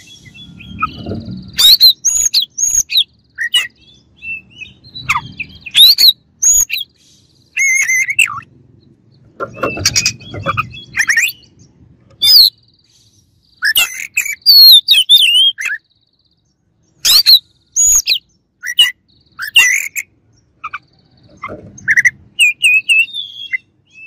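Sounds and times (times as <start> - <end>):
bird singing whistled phrases: 0.0 - 8.5, 9.6 - 11.5, 12.2 - 12.6, 13.6 - 15.8, 17.0 - 20.1, 21.8 - 24.0.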